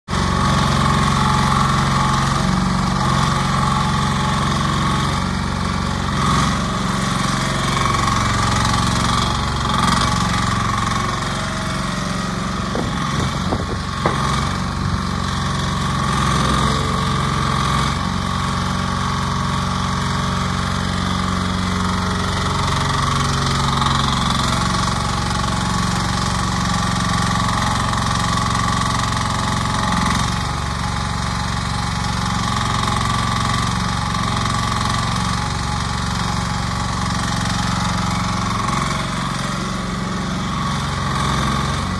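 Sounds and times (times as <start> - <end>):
small excavator engine running: 0.1 - 41.9
short knocks: 12.7 - 15.0.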